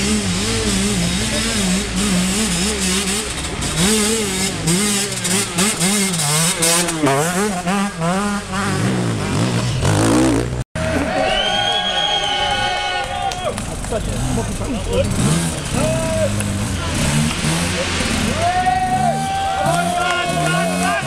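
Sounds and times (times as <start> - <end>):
second motorcycle approaching: 0.0 - 11.1
motorcycle engines revving: 0.0 - 21.0.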